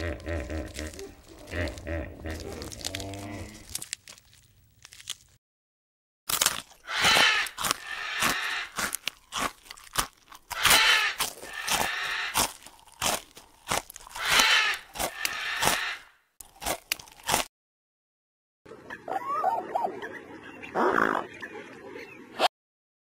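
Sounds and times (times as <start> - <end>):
animal crunching food: 0.0 - 5.4, 6.3 - 17.5.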